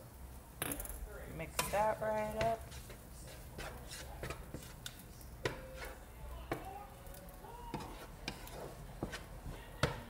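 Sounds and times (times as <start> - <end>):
spatula scraping frying pan: 1.5 - 6.6, 7.7 - 9.7.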